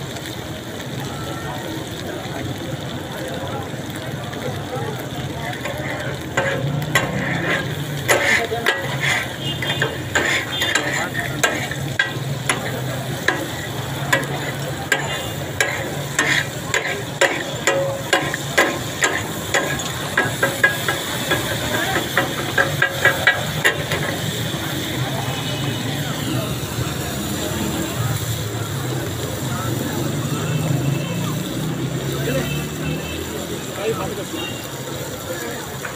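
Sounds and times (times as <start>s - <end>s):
oil and meat sizzling: 0.0s - 35.9s
metal spatulas clacking on griddle: 5.5s - 24.4s.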